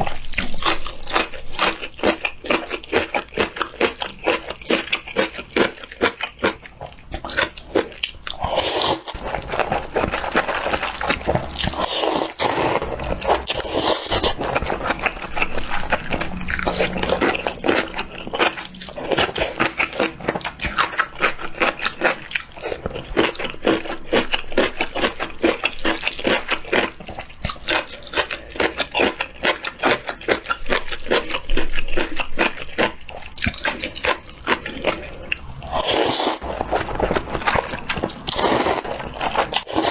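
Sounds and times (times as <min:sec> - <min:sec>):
chewing: 0:00.0 - 0:39.9
slurping noodles: 0:07.2 - 0:24.0, 0:24.7 - 0:39.9.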